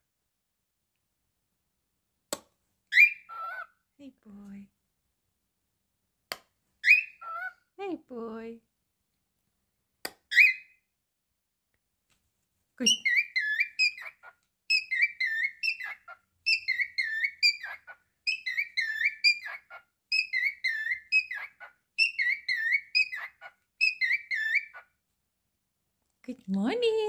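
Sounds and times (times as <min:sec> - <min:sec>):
cockatiel whistling a tune: 0:02.9 - 0:03.6, 0:06.8 - 0:07.5, 0:10.3 - 0:10.8, 0:12.9 - 0:24.8
bird chirp: 0:02.9 - 0:03.8, 0:06.8 - 0:07.6, 0:10.3 - 0:10.9, 0:12.8 - 0:25.0.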